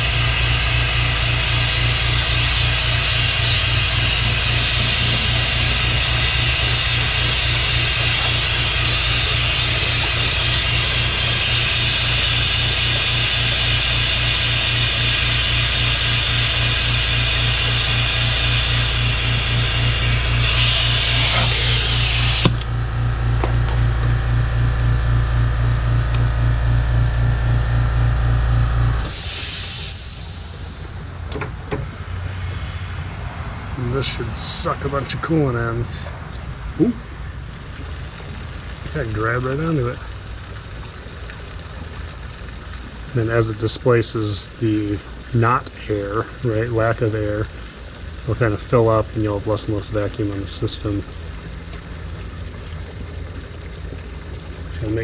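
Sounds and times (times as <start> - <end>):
compressed air hissing: 0.0 - 22.6, 29.0 - 31.3
air compressor running: 0.0 - 32.0.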